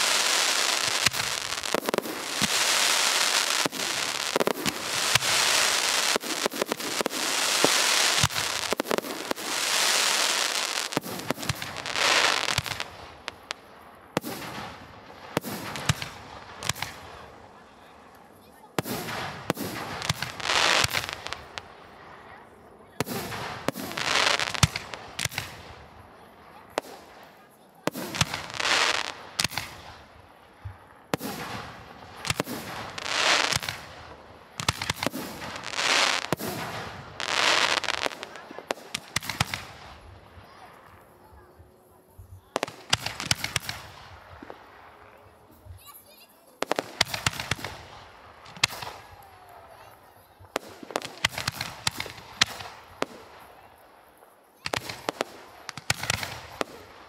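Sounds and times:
fireworks burst hiss: 0.0s - 13.4s, 31.1s - 39.9s, 46.6s - 49.2s
fireworks bangs: 0.0s - 57.0s.

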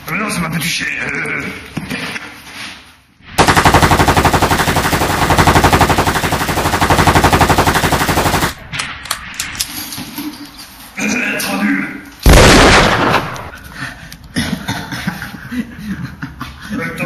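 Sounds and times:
machine-gun fire: 3.4s - 8.7s, 12.3s - 13.6s.

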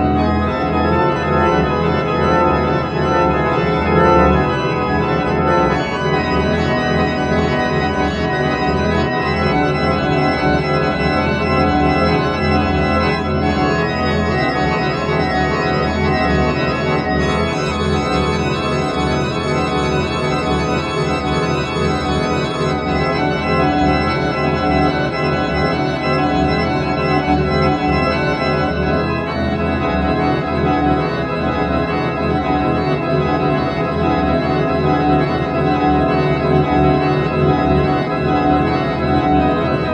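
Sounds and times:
organ chords: 0.0s - 39.9s.

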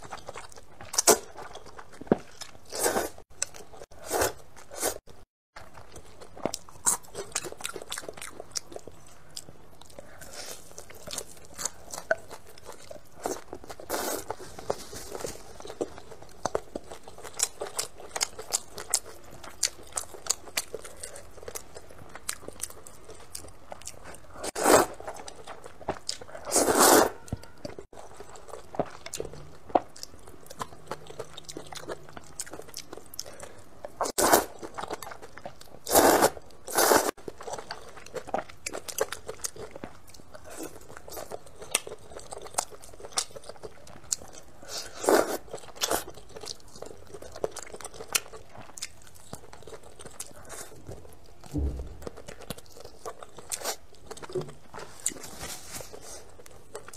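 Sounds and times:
slurping noodles: 24.5s - 25.1s, 26.5s - 27.2s, 35.9s - 37.2s.

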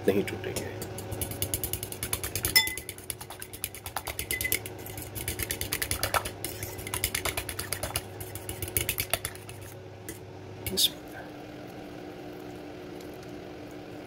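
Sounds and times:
fork clinking against bowl: 0.6s - 10.8s.

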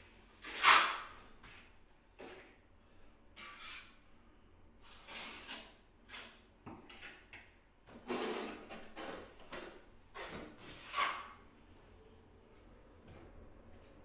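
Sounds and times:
trowel scraping compound: 0.4s - 1.1s.

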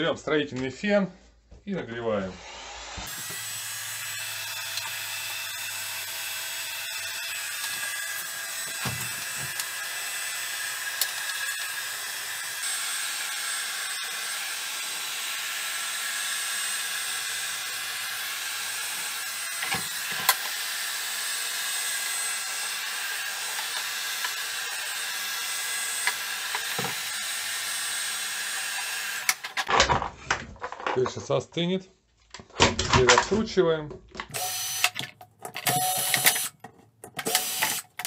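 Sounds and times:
heat gun blowing hot air: 2.3s - 29.6s.

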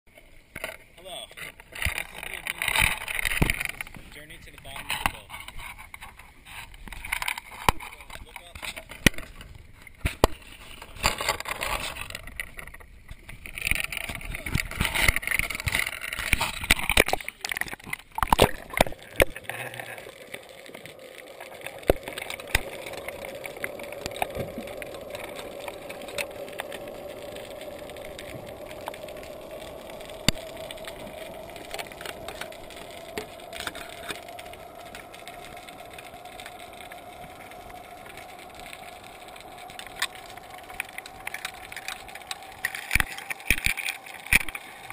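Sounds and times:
underwater clicks: 1.4s - 44.9s
underwater hum rising in pitch: 18.0s - 44.9s.

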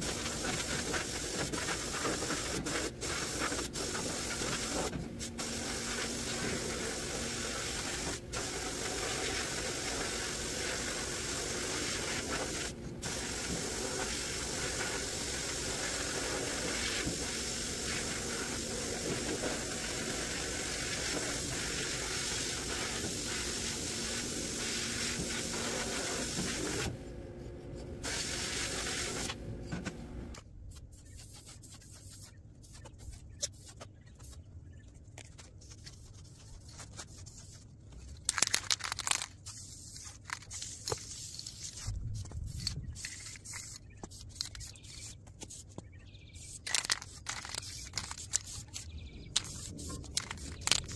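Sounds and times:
sandblast gun hissing: 0.0s - 26.9s, 28.0s - 29.3s.

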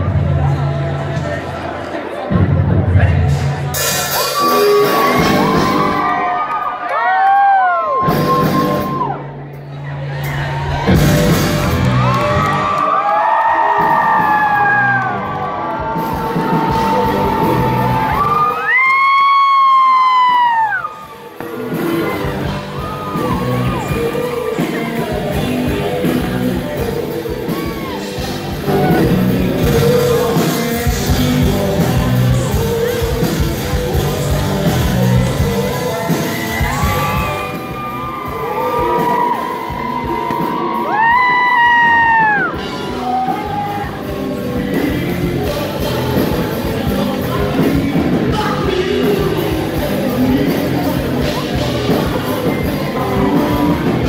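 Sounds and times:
live rock band: 0.0s - 54.0s
person singing into microphone: 21.6s - 54.0s.

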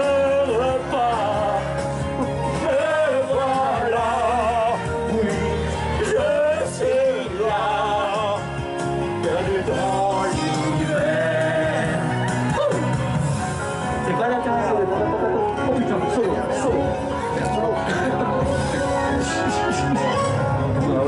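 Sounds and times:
man singing karaoke: 0.0s - 12.8s
amplified backing track: 0.0s - 21.0s.

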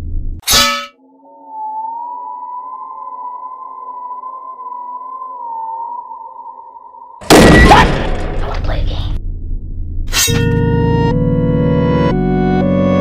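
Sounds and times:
eerie background music: 0.9s - 13.0s
loud burst: 7.3s - 8.6s.

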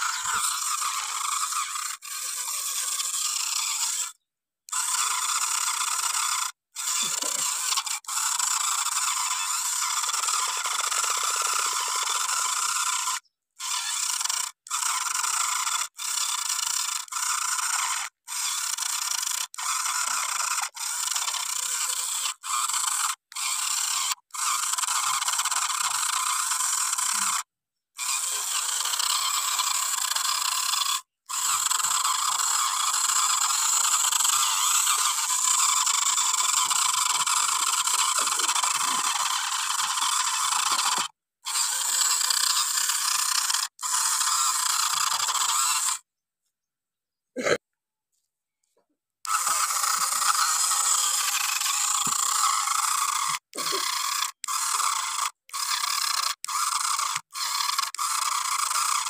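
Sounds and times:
toy electric motor whining: 0.0s - 46.1s, 49.2s - 59.0s.

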